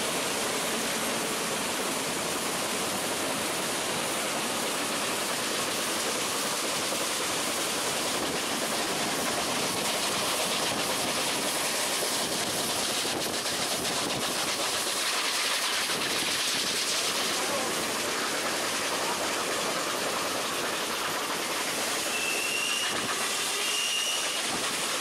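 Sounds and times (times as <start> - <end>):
steam locomotive running: 0.0 - 25.0.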